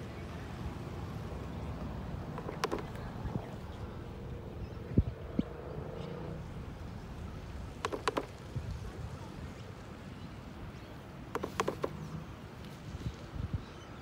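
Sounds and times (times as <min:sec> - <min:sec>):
low steady rumble: 0:00.1 - 0:10.6
palette knife tapping canvas: 0:02.4 - 0:02.9, 0:07.8 - 0:08.3, 0:11.4 - 0:11.9.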